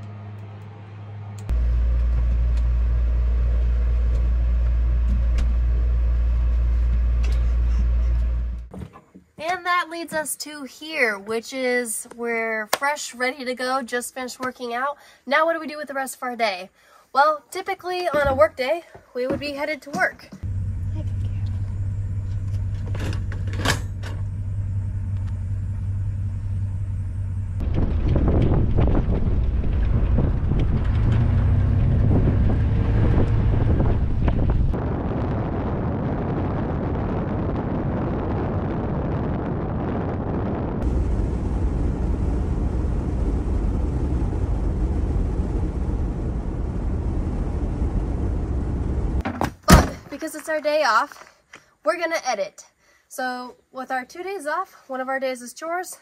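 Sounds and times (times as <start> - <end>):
truck engine idling: 0.0 - 8.7, 20.4 - 31.9
low mechanical hum pulsing: 0.0 - 8.8, 20.2 - 49.2.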